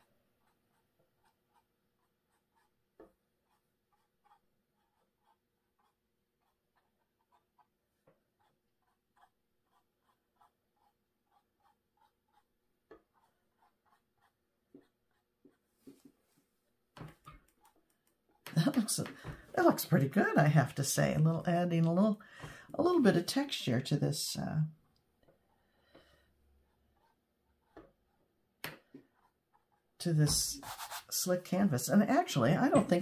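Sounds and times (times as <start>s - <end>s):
paintbrush dabbing on canvas: 0.3s - 16.2s, 26.6s - 28.2s, 28.8s - 31.5s.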